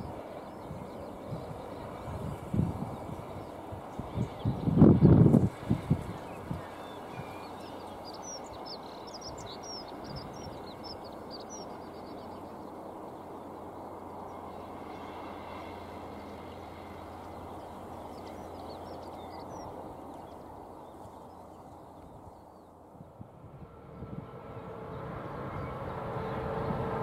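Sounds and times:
wind noise: 0.0 - 8.0, 17.1 - 27.0
distant locomotive hum: 0.0 - 27.0
small birds chirping: 5.8 - 22.8.

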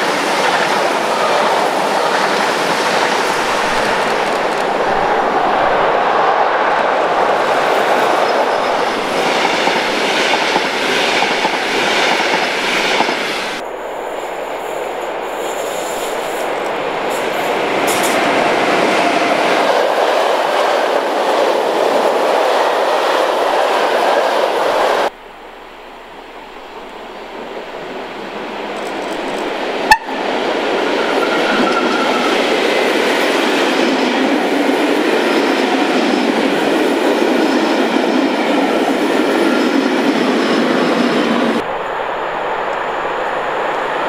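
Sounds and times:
train wheels clattering on rails: 7.5 - 13.6, 15.4 - 24.2.

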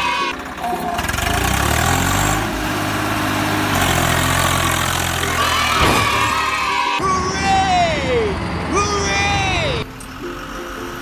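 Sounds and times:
vehicle engine revving: 0.3 - 6.7.

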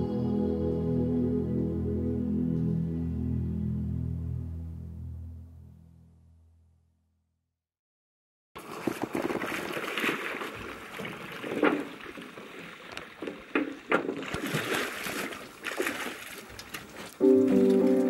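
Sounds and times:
music: 0.0 - 7.0, 17.2 - 18.0
paddle splashing in water: 8.6 - 18.0
water sloshing and lapping: 8.6 - 18.0.

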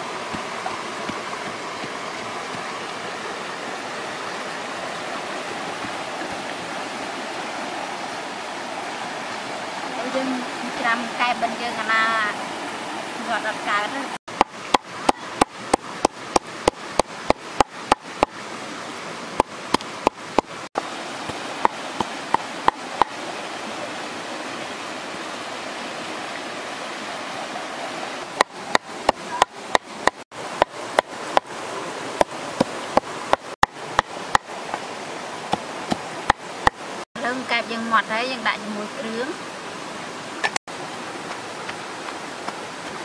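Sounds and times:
rushing stream: 0.0 - 43.0
cleaver chopping on wooden board: 0.3 - 2.6.

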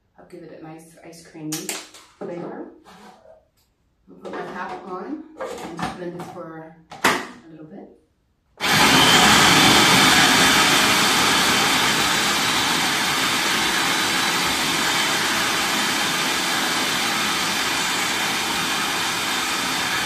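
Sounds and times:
food processor whirring: 8.6 - 20.0.

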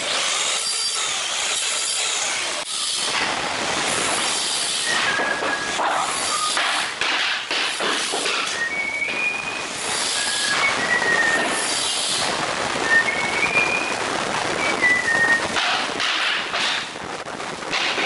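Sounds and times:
person whistling: 8.5 - 11.5, 12.9 - 13.9, 14.6 - 15.5.

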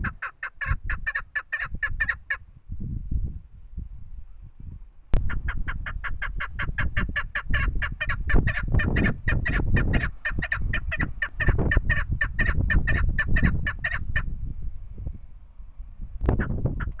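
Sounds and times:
partridge calling: 0.0 - 2.4, 5.2 - 14.3, 16.3 - 17.0.

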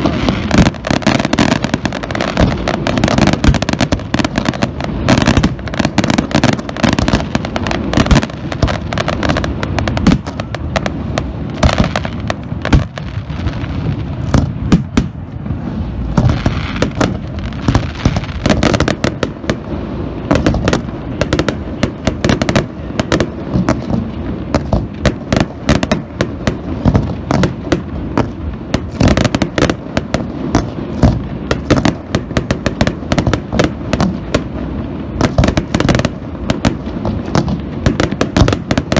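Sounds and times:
fireworks bangs: 0.0 - 38.9.

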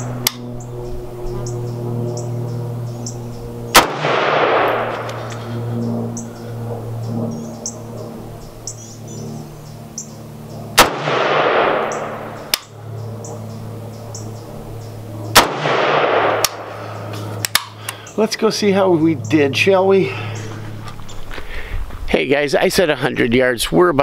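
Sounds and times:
rifle shots with echo: 3.7 - 5.3, 10.7 - 12.6, 15.3 - 16.7.

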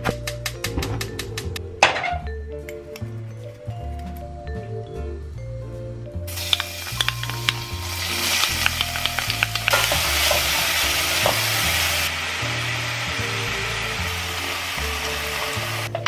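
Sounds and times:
garlic and onion sizzling in oil: 6.3 - 16.0
spoon clicking against pan: 6.4 - 10.4.

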